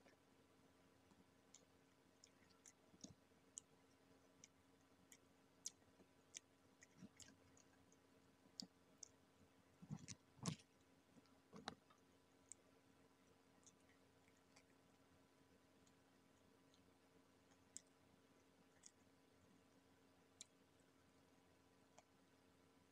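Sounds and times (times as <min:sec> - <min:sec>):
chewing crispy fried chicken: 0:04.4 - 0:09.2, 0:09.8 - 0:10.8, 0:13.6 - 0:14.9.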